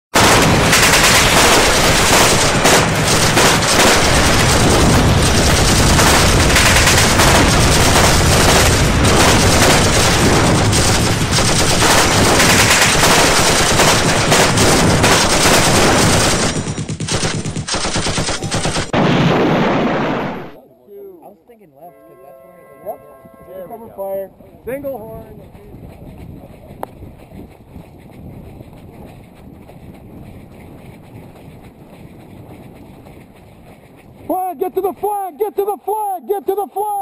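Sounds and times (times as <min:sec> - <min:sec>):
automatic gunfire: 0:00.2 - 0:20.6.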